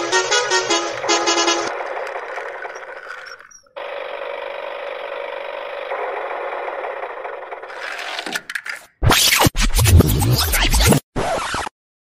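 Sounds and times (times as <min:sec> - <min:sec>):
wind-up toy motor whirring: 0:02.0 - 0:03.7.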